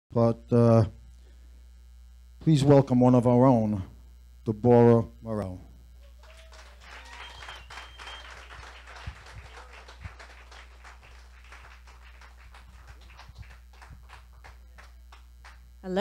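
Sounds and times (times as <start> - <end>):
low electrical hum: 0.1 - 16.0
audience applauding: 6.0 - 15.6.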